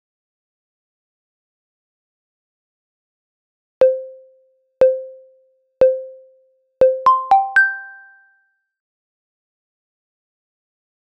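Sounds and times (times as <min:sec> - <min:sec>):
timer ringing tones: 0:03.8 - 0:05.2, 0:05.8 - 0:06.2, 0:06.8 - 0:08.2
higher start chime tones: 0:06.8 - 0:08.2.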